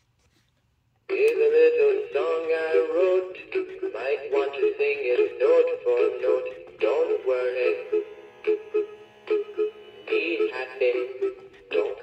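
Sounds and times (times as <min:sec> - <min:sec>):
man singing over music: 0:01.1 - 0:08.6, 0:10.0 - 0:12.0.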